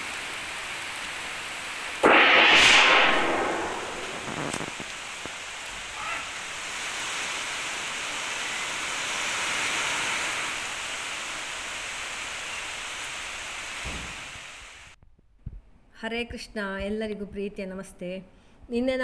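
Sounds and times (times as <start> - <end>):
heavy rain pouring: 0.0 - 15.0.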